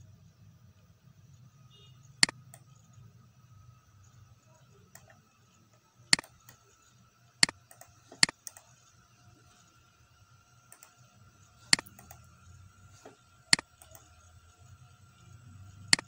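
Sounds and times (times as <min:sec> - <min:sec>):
faint steady hum: 0:00.0 - 0:16.0
computer mouse clicks: 0:02.2 - 0:02.8, 0:04.8 - 0:05.2, 0:06.1 - 0:06.8, 0:07.4 - 0:08.9, 0:10.6 - 0:12.4, 0:13.0 - 0:14.2, 0:15.8 - 0:16.0.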